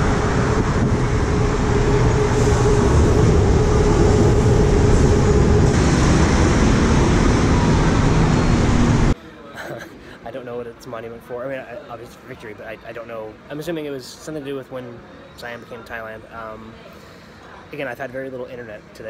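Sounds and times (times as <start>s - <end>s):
heavy road traffic: 0.0s - 10.2s.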